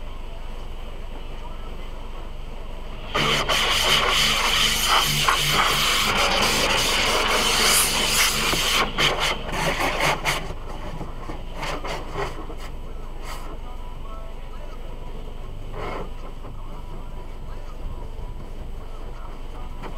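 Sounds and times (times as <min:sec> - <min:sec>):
water spraying and scrubbing on glass: 0:03.2 - 0:10.4.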